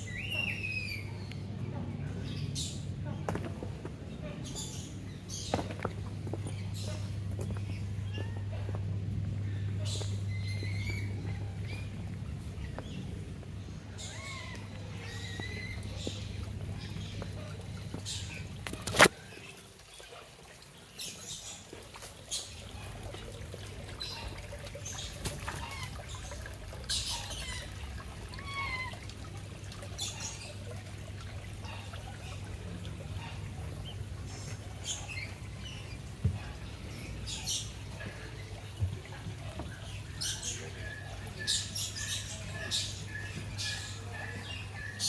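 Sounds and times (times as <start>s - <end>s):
steady low hum: 0.0s - 19.3s
birds chirping and squawking: 0.0s - 30.9s, 31.5s - 45.0s.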